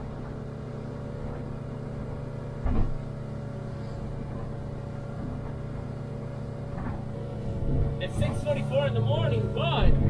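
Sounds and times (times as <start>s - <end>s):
boat engine droning: 0.0s - 10.0s
thump: 2.6s - 3.0s.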